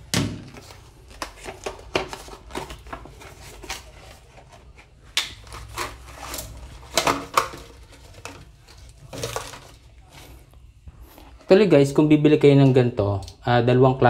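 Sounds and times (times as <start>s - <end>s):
plastic bag crinkling: 5.4s - 10.1s.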